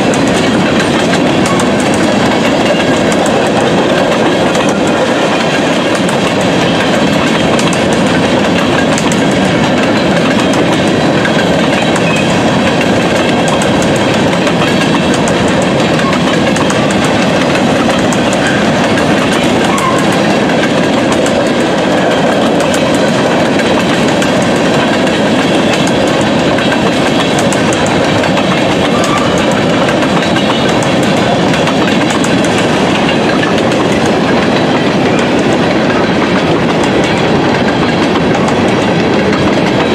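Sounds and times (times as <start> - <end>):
clickety-clack over rail joints: 0.0 - 39.9
train wheels rumbling on rails: 0.0 - 39.9.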